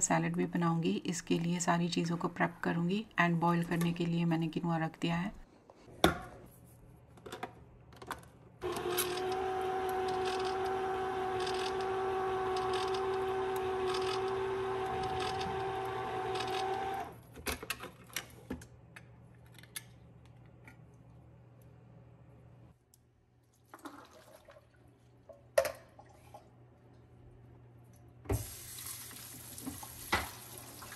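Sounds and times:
small motor humming: 0:08.6 - 0:17.1.

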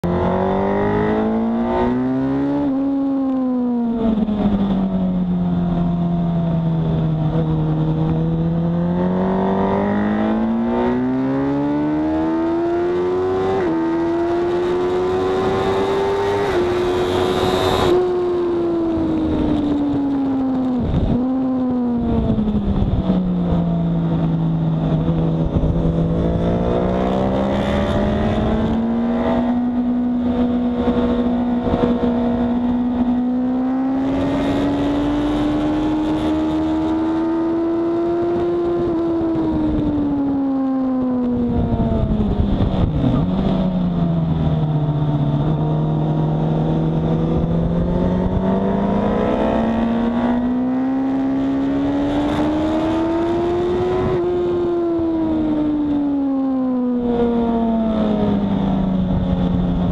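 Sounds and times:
motorcycle engine revving: 0:00.0 - 0:59.9
wind rush: 0:15.0 - 0:56.2.

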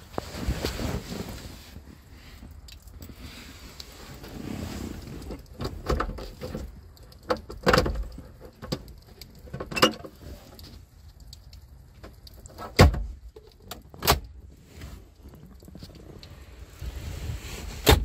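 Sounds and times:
sharp clicks and knocks: 0:05.4 - 0:14.4.

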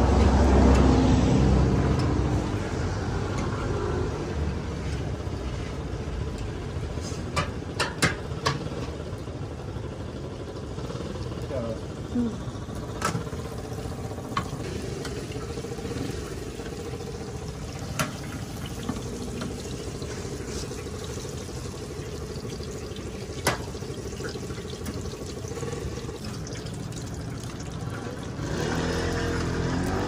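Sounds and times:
oil sizzling and bubbling: 0:00.0 - 0:30.0.

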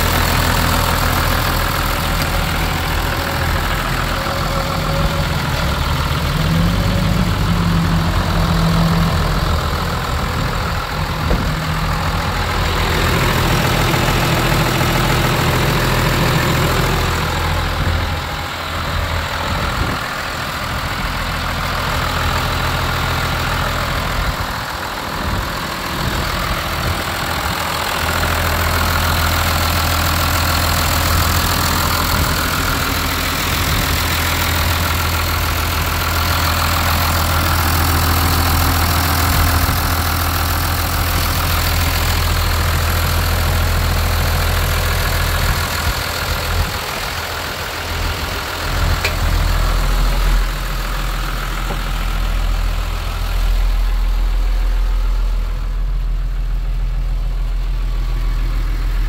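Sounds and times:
tractor diesel engine idling: 0:00.0 - 0:59.0.

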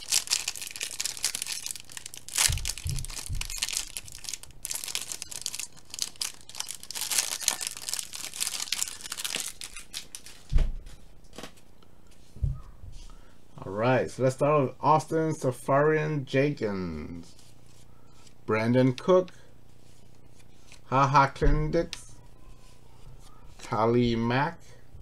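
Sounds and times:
plastic wrapper crinkling and tearing: 0:00.0 - 0:10.5
handling of cards: 0:00.0 - 0:12.3.

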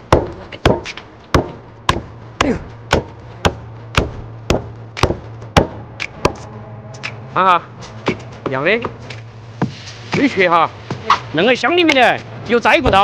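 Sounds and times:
cleaver chopping bone on wood: 0:00.1 - 0:06.4.

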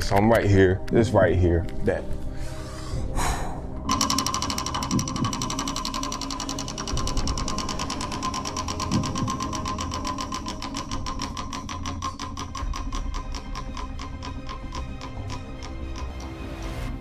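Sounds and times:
prize wheel flapper ticking: 0:03.9 - 0:17.0.

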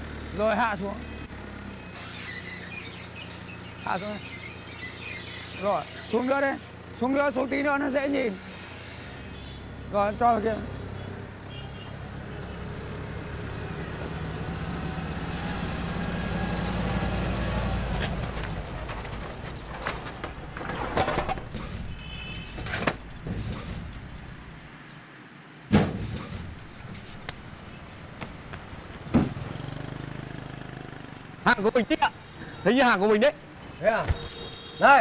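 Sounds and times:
knocks and clatter: 0:17.6 - 0:24.7, 0:25.7 - 0:27.5
sharp bang: 0:25.7 - 0:26.6.

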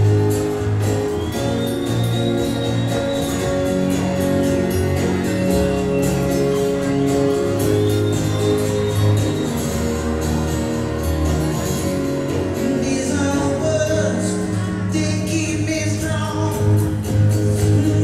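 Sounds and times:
acoustic guitar strumming: 0:00.0 - 0:18.0
man singing: 0:12.5 - 0:18.0.

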